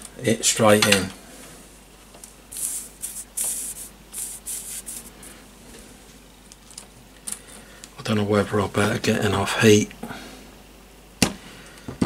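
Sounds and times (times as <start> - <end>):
solder hissing and sizzling: 1.3 - 6.1.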